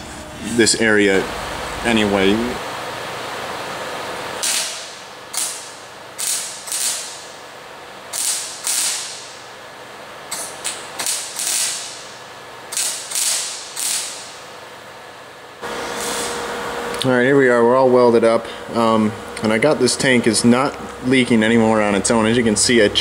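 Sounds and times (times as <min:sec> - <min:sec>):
welder arcing in short bursts: 0:04.4 - 0:07.4, 0:08.1 - 0:09.5, 0:10.3 - 0:14.5, 0:15.8 - 0:16.4.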